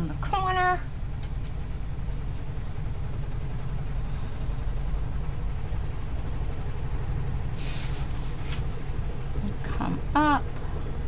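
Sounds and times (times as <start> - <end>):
washing machine spinning: 0.0 - 11.0
paper sliding on table: 7.5 - 8.8.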